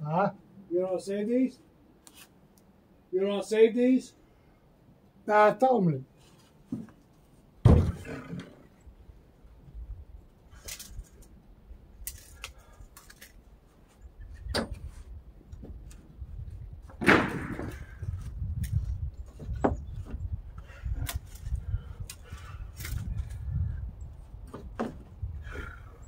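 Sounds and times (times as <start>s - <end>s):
wooden boards knocking and clattering: 7.6s - 8.6s, 16.8s - 18.1s, 19.3s - 20.3s, 24.5s - 25.1s.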